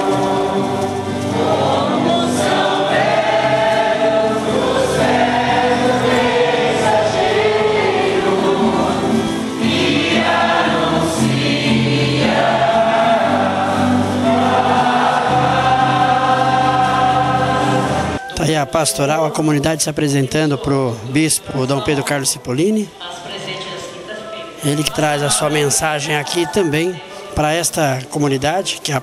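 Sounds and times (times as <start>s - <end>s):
group singing in chorus: 0.0s - 18.8s
instrumental accompaniment: 0.0s - 19.6s.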